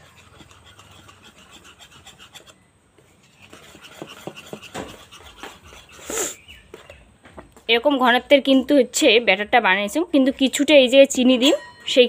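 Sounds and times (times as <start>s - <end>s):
whisk scraping bowl: 0.0s - 2.6s, 3.2s - 6.2s.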